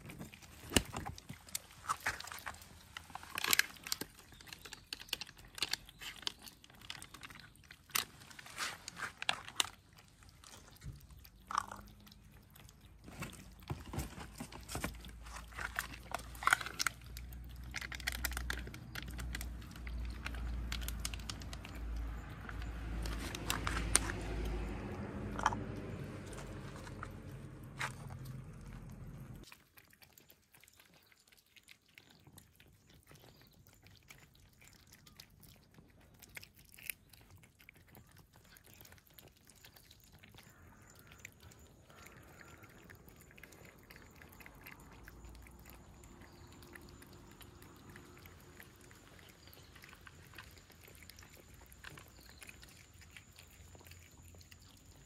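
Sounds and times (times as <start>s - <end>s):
cats crunching dry food: 0.0s - 55.0s
low rumble: 18.7s - 29.4s.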